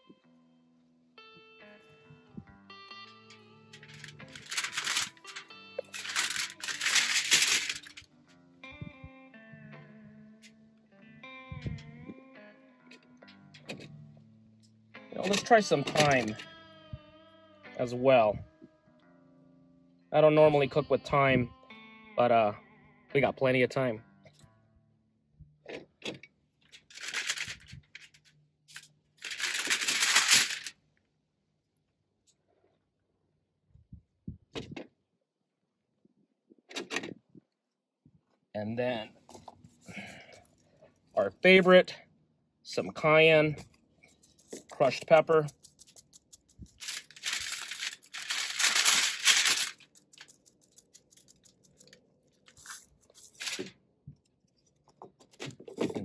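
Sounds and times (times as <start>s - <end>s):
aluminium foil crinkling: 3.8s - 8.1s, 15.2s - 16.4s, 26.7s - 30.7s, 44.1s - 53.7s.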